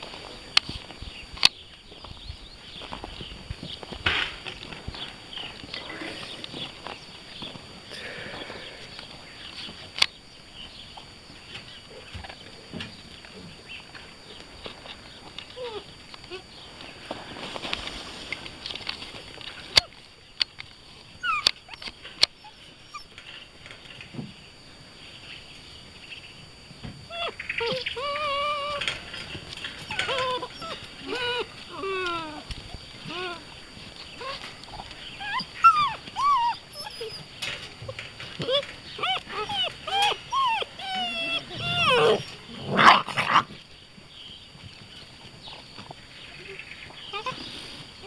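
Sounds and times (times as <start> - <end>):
puppy whining and yelping: 15.5 - 16.4, 21.2 - 23.5, 27.1 - 43.4, 46.4 - 47.5
puppy barks: 39.0 - 43.5.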